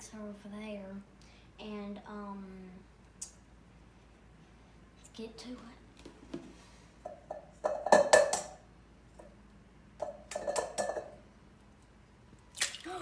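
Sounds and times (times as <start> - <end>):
eggs cracked on metal bowl: 7.3 - 8.6, 10.0 - 11.2.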